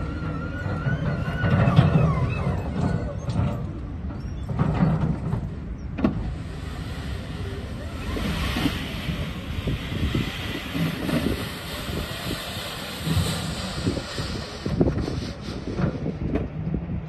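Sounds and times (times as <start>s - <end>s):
wheel loader scraping sand: 0.0s - 16.3s
wind buffeting microphone: 0.0s - 17.0s
noisy hiss: 6.3s - 15.6s.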